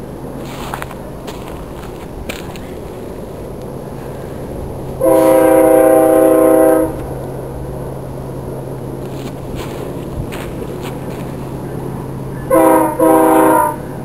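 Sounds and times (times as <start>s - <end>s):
passing train rumble: 0.0s - 14.0s
locomotive air horn blast: 5.0s - 7.1s, 12.4s - 14.0s.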